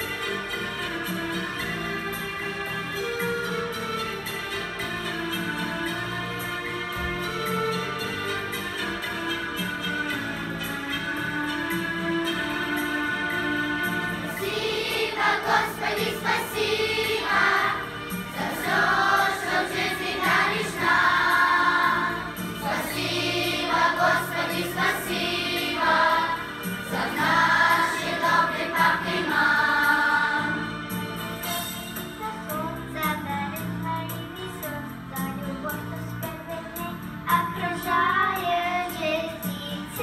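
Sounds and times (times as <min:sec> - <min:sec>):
instrumental accompaniment: 0:00.0 - 0:40.0
children's choir singing a hymn: 0:13.9 - 0:31.2.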